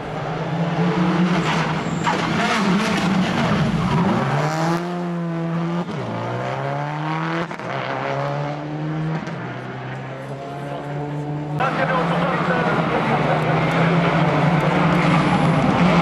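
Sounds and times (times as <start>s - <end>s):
rally car engine at high revs: 0.0s - 16.0s
tyres skidding: 0.0s - 16.0s.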